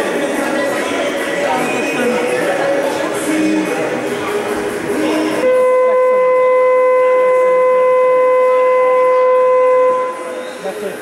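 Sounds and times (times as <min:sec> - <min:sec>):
voices echoing in a hall: 0:00.0 - 0:11.0
long loud game horn: 0:05.4 - 0:10.5.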